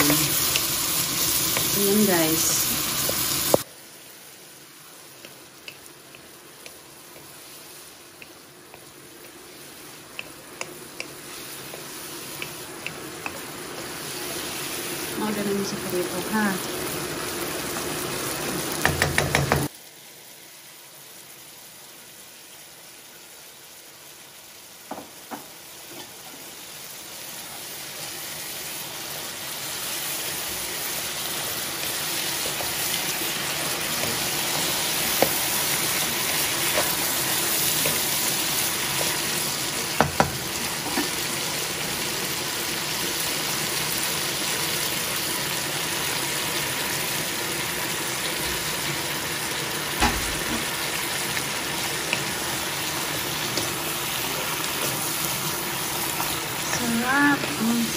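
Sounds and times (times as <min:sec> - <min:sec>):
food sizzling in a wok: 0:00.0 - 0:57.9
wooden spatula knocking on pan: 0:18.8 - 0:19.7, 0:40.0 - 0:41.1.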